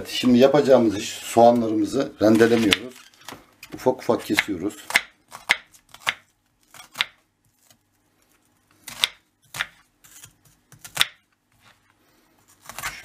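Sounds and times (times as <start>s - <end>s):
knife cutting onion on board: 2.3s - 3.0s, 4.2s - 7.8s, 8.8s - 11.8s, 12.5s - 13.0s.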